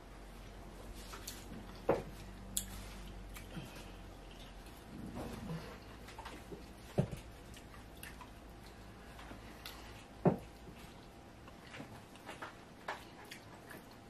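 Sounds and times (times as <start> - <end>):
wet squishes and mouth smacks: 7.5 - 8.8.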